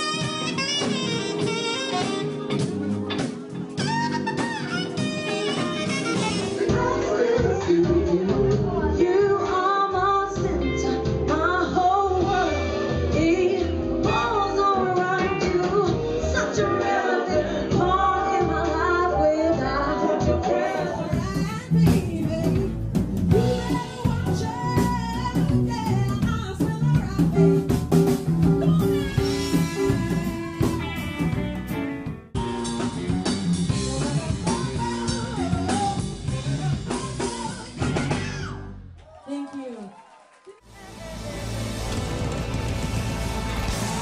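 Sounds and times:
electric guitar: 0:00.0 - 0:16.7, 0:18.3 - 0:38.6, 0:40.7 - 0:44.0
drum kit: 0:00.0 - 0:38.8, 0:40.7 - 0:44.0
woman singing lead: 0:06.5 - 0:27.7, 0:28.4 - 0:31.3, 0:34.0 - 0:37.9.

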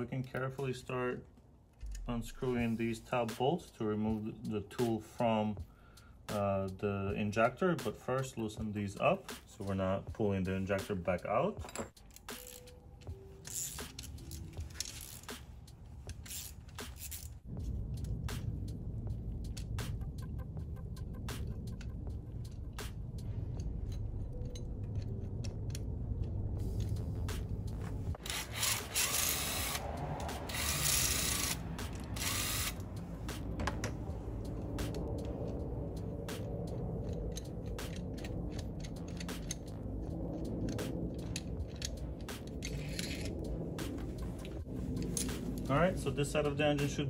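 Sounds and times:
low rumble: 0:01.8 - 0:02.8, 0:17.3 - 0:47.0
hand wrench clicking on bolts: 0:16.0 - 0:17.4, 0:23.5 - 0:26.9, 0:28.2 - 0:32.8, 0:37.0 - 0:43.4
cordless drill spinning: 0:28.2 - 0:29.9, 0:30.5 - 0:32.8.

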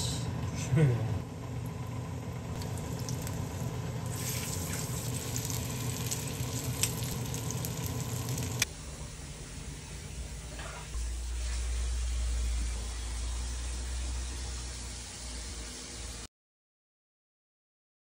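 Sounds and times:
steady low hum: 0:00.0 - 0:16.3
pancakes sizzling in oil: 0:02.6 - 0:08.7.

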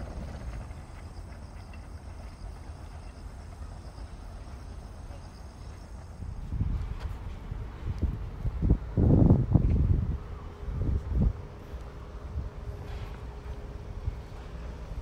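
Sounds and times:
wind buffeting microphone: 0:06.1 - 0:15.0.

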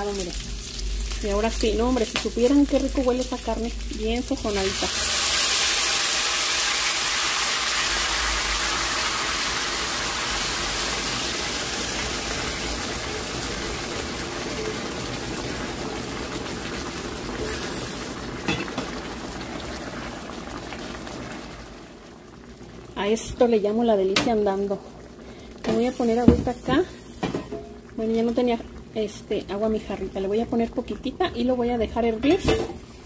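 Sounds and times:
sauce sizzling in hot pan: 0:00.0 - 0:22.9.

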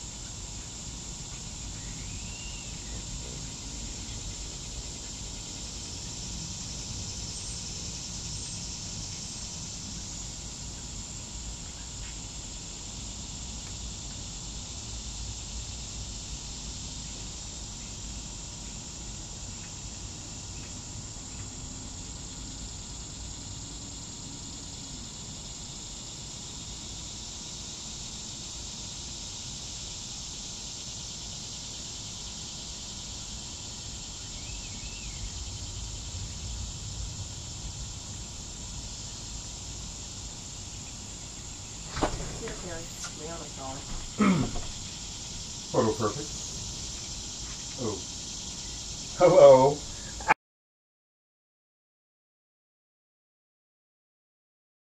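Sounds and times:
insects droning: 0:00.0 - 0:50.4
low rumble: 0:35.0 - 0:39.8.

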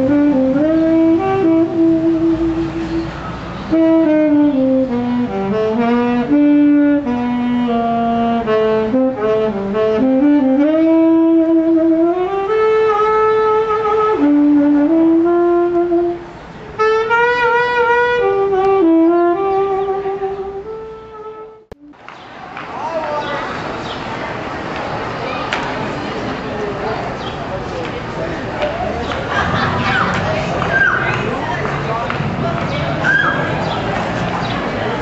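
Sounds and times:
saxophone melody: 0:00.0 - 0:22.0.

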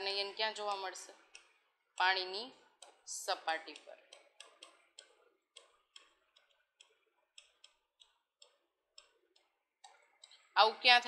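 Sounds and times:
chalk writing on a blackboard: 0:03.7 - 0:09.5.

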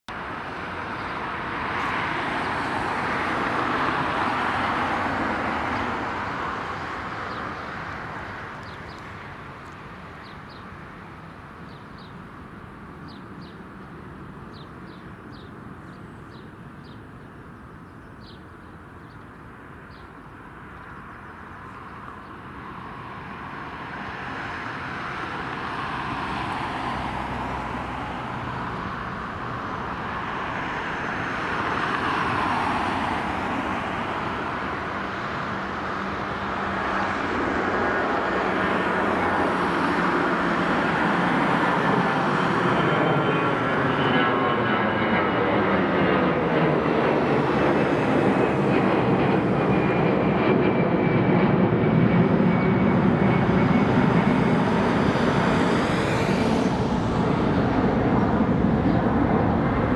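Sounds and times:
jet engines roaring: 0:00.1 - 0:17.8, 0:18.4 - 0:59.9.

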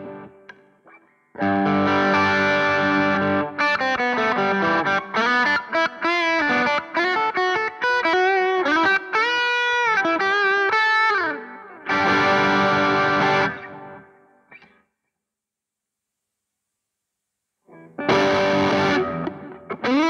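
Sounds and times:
overdriven electric guitar lead: 0:00.0 - 0:14.8, 0:17.7 - 0:20.0.

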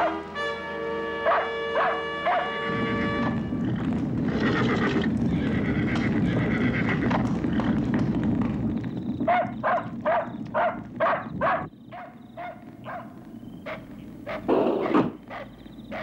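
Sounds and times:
dog barking: 0:00.0 - 0:00.2, 0:01.2 - 0:02.6, 0:09.3 - 0:16.0
fire blazing: 0:02.6 - 0:15.3.

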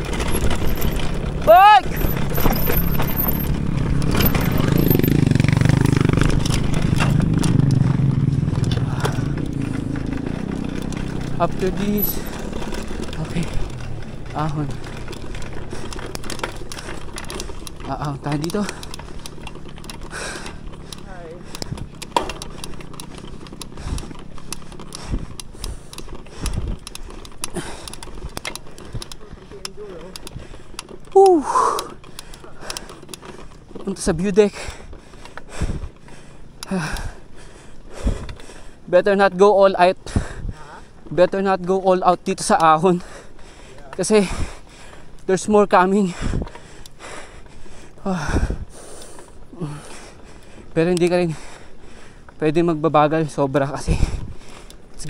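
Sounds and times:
tyre rumble on dirt: 0:00.0 - 0:25.3
bike clicks and rattles: 0:00.0 - 0:55.0.

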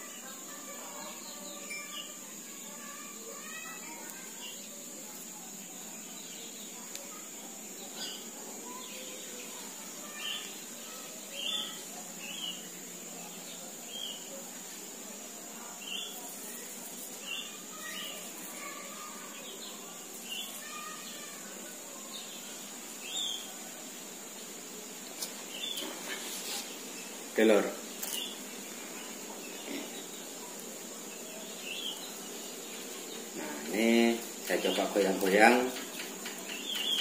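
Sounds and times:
birds chirping: 0:00.0 - 0:37.0
faint high hiss: 0:00.0 - 0:37.0.

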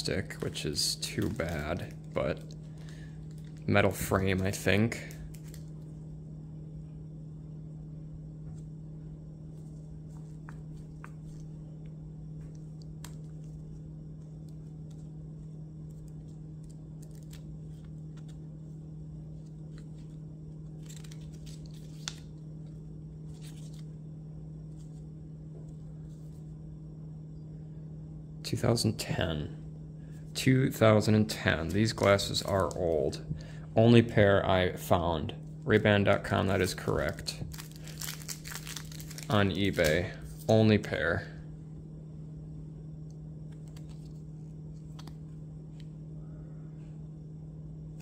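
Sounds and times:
steady low hum: 0:00.0 - 0:48.0
paper and card rustling: 0:00.2 - 0:05.7, 0:15.8 - 0:18.4, 0:19.4 - 0:22.4, 0:23.2 - 0:23.9, 0:31.6 - 0:33.2, 0:35.7 - 0:40.6.

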